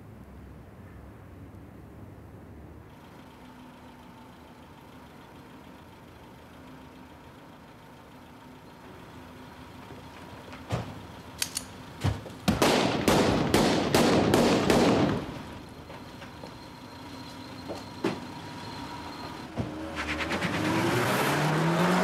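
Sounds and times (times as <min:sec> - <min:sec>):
echoing handgun shots: 0:12.6 - 0:15.4.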